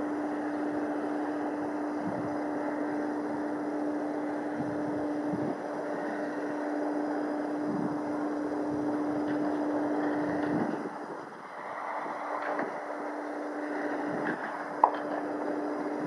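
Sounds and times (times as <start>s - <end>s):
distant propeller plane drone: 0.0s - 16.0s
wind noise on microphone: 1.9s - 2.6s, 4.4s - 6.4s, 7.4s - 16.0s.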